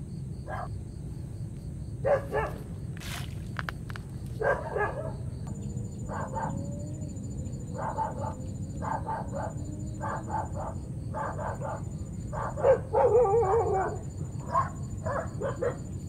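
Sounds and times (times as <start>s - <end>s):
dog barking: 0.5s - 0.8s, 2.0s - 2.7s, 4.4s - 5.3s, 6.0s - 6.7s, 7.7s - 15.9s.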